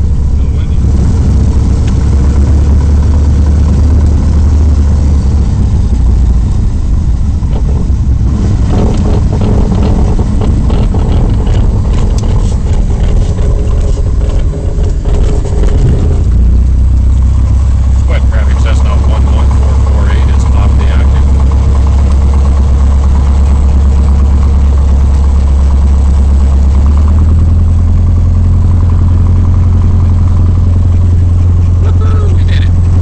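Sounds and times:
propeller plane engine droning: 0:00.0 - 0:33.0
clattering and knocks: 0:07.4 - 0:16.6.

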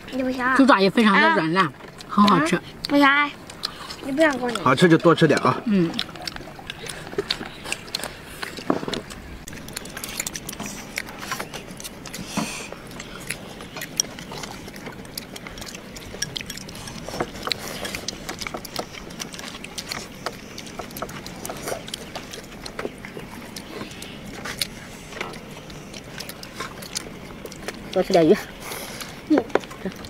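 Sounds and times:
chewing: 0:00.0 - 0:30.0.

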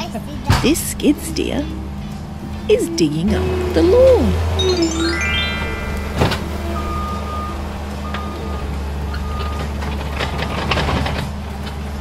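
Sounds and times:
reversing alarm beeps: 0:02.8 - 0:09.7
skid steer engine running: 0:03.4 - 0:04.8, 0:05.6 - 0:12.0
knocks and clatter: 0:09.6 - 0:11.8.

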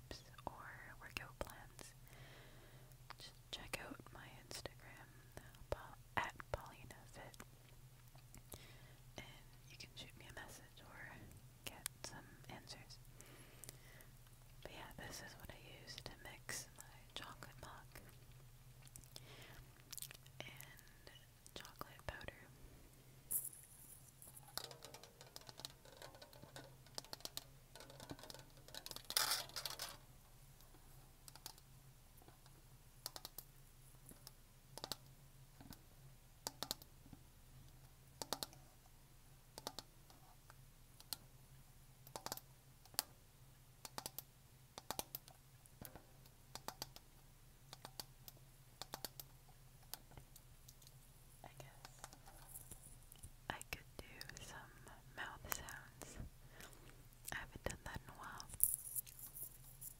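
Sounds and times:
nails scratching plastic: 0:58.3 - 0:59.9.

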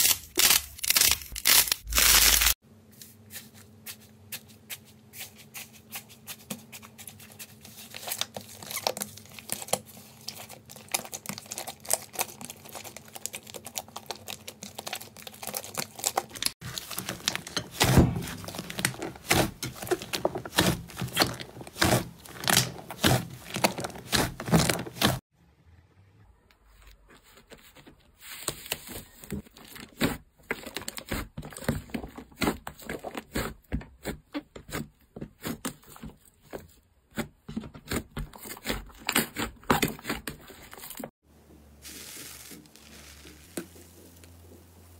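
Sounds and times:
slime crackling and popping: 0:08.2 - 0:25.2.

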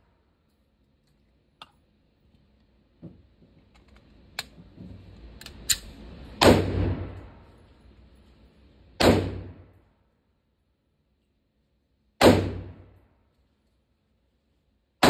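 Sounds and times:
echoing gunshots: 0:06.4 - 0:07.4, 0:09.0 - 0:09.7, 0:12.2 - 0:12.9.

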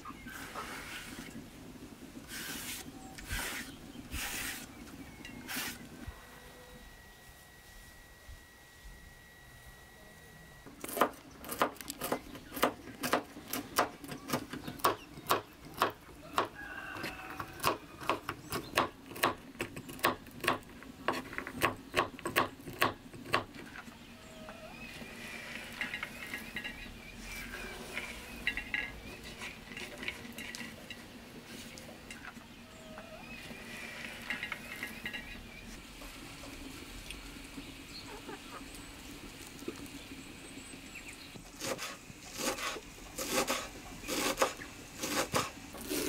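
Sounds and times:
scraping and rustling nuts: 0:23.2 - 0:35.8.

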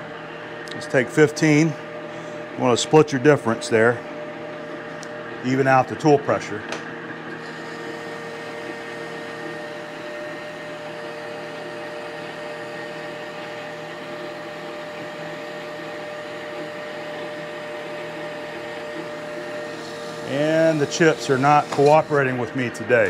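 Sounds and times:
steady drive tones: 0:00.0 - 0:17.6, 0:18.6 - 0:23.0
lathe running: 0:00.0 - 0:23.0
cutting tool cutting steel: 0:19.4 - 0:22.8.

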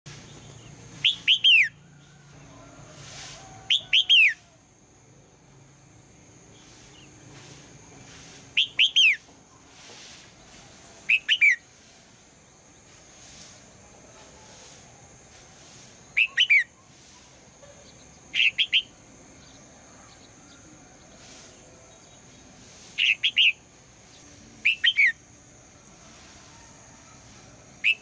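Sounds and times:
bird whistled calls: 0:01.0 - 0:01.8, 0:03.7 - 0:04.4, 0:08.6 - 0:09.2, 0:11.1 - 0:11.6, 0:16.2 - 0:16.7, 0:18.3 - 0:18.9, 0:23.0 - 0:23.6, 0:24.6 - 0:25.2.

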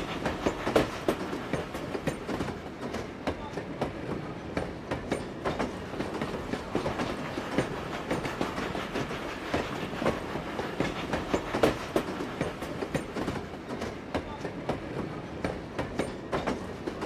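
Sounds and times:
train wagons rumbling: 0:00.0 - 0:17.0
wheels clacking over rail joints: 0:00.0 - 0:17.0.

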